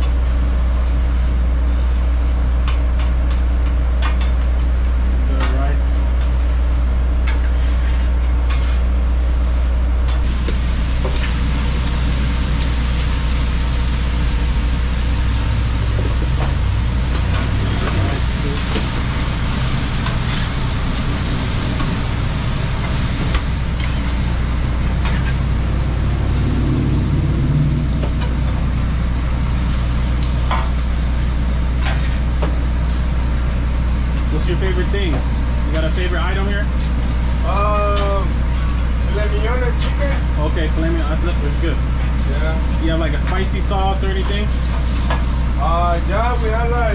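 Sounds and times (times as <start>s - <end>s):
low machinery hum: 0.0s - 46.9s
shrimp sizzling on griddle: 10.2s - 46.9s.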